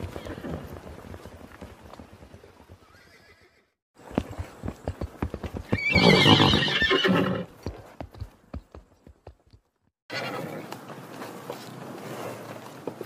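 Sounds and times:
horse hooves on ground: 0:00.0 - 0:03.4, 0:04.0 - 0:13.0
horse neighing: 0:02.8 - 0:03.8, 0:05.7 - 0:07.5, 0:10.1 - 0:10.7.

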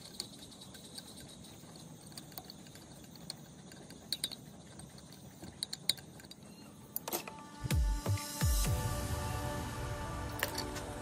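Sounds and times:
faint steady background noise: 0:00.0 - 0:11.0.

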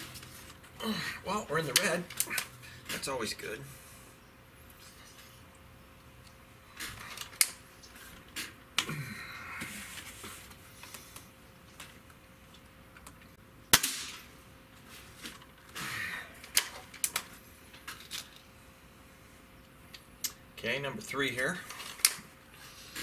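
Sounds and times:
air rifle shot: 0:13.7 - 0:14.3.

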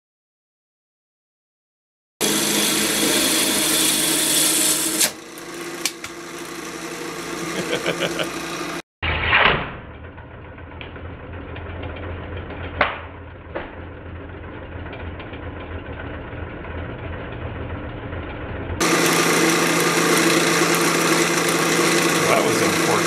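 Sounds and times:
electric motor humming: 0:02.2 - 0:08.8, 0:18.2 - 0:23.0
slowed wood lathe hum: 0:02.2 - 0:08.8, 0:09.9 - 0:23.0.

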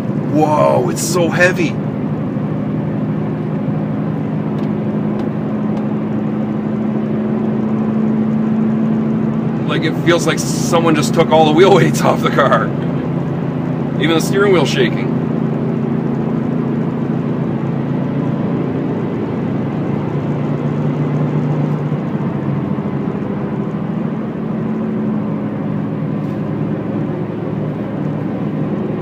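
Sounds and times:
car drivetrain drone: 0:00.0 - 0:29.0
road noise: 0:00.0 - 0:29.0.

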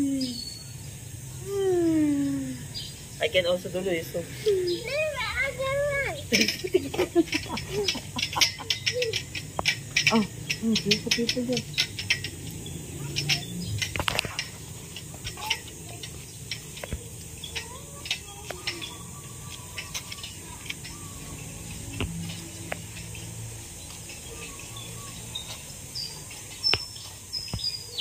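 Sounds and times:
low outdoor murmur: 0:00.0 - 0:28.0
footsteps on pavement: 0:11.5 - 0:28.0
faint bird chirps: 0:14.9 - 0:22.0, 0:23.0 - 0:28.0.

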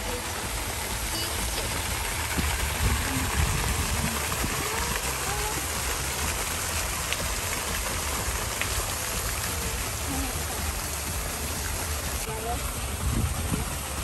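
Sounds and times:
fountain splashing: 0:00.0 - 0:14.0
low rumble: 0:00.0 - 0:14.0.

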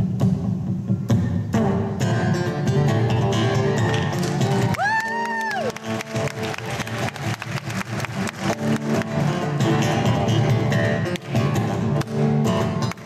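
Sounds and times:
acoustic guitar with percussive hits: 0:08.0 - 0:13.0.

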